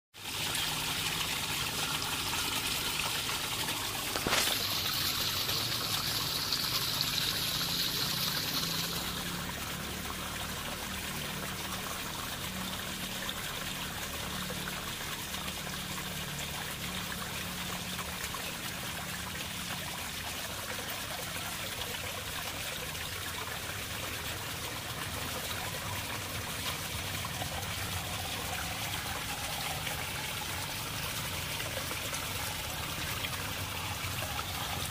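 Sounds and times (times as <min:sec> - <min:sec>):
water trickling: 0:00.2 - 0:34.9.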